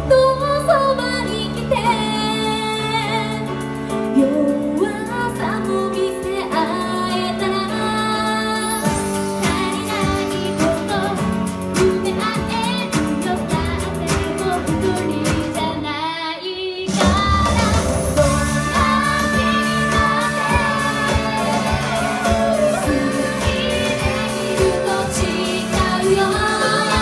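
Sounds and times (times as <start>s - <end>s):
electric keyboard: 0.0s - 15.9s, 17.2s - 27.0s
women singing into microphones: 4.2s - 27.0s
steady beat: 18.2s - 27.0s.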